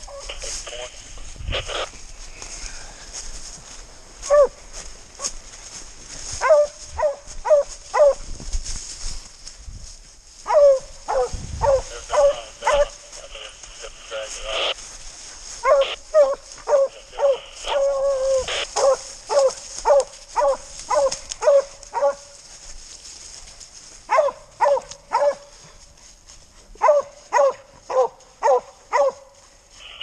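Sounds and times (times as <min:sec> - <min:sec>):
hounds barking: 0:04.2 - 0:04.6, 0:06.4 - 0:08.3, 0:10.4 - 0:13.0, 0:15.6 - 0:22.4, 0:24.1 - 0:25.6, 0:26.8 - 0:29.3.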